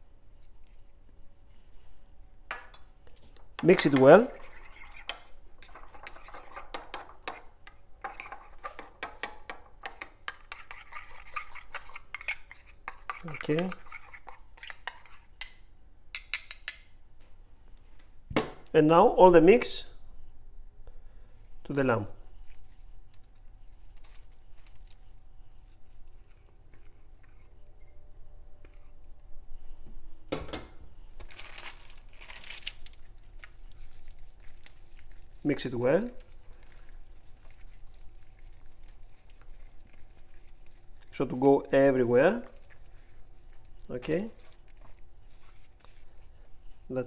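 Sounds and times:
spoon scraping bowl: 3.6 - 15.5, 25.6 - 29.0, 33.1 - 46.5.

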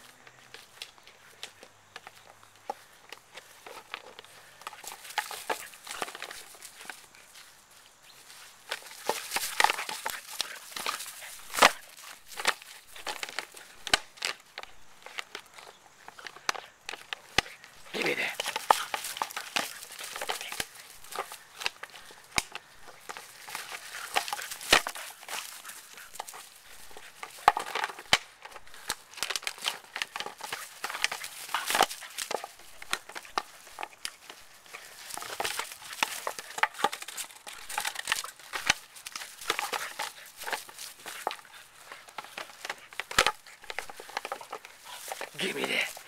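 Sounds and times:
plastic bottle crinkling: 0.0 - 46.0
dog chewing plastic bottle: 18.3 - 46.0.

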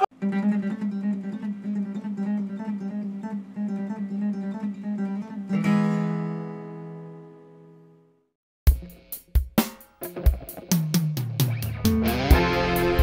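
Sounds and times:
strummed guitar chord: 0.0 - 7.9, 11.7 - 13.0
acoustic guitar melody: 0.0 - 8.2, 11.4 - 13.0.

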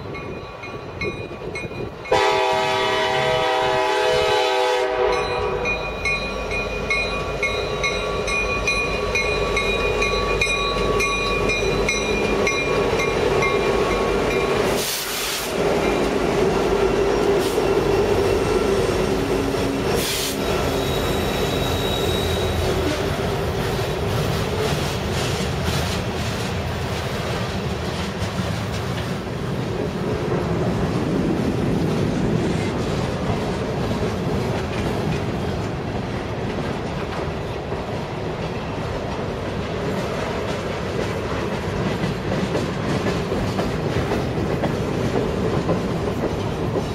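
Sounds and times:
diesel locomotive engine hum: 0.0 - 46.9
train wheels clicking over rail joints: 6.0 - 46.9
high wheel squeal: 16.9 - 23.1.

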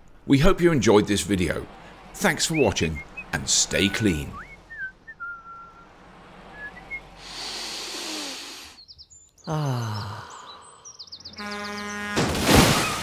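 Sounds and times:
birds chirping: 0.1 - 12.2
vehicle passing with a whoosh: 1.1 - 7.9
horn-like blast: 11.4 - 12.4
loud crash: 12.2 - 13.0.

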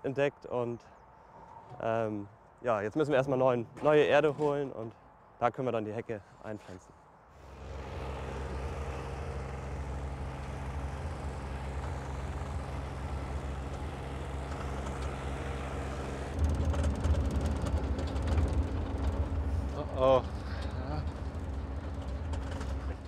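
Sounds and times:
diesel engine running: 7.4 - 23.0
loud rough engine: 7.4 - 23.0.

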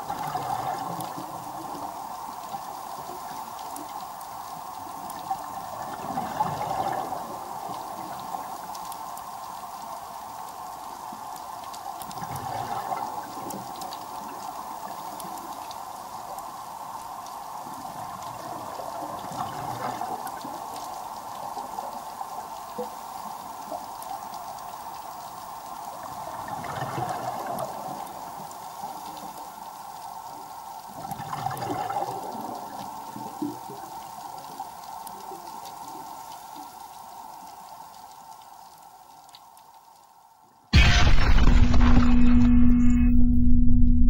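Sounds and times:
exhaled bubbles underwater: 0.0 - 10.7, 12.1 - 15.2, 17.6 - 23.0, 25.7 - 36.8
faint clicks: 0.1 - 19.4, 26.5 - 40.3.

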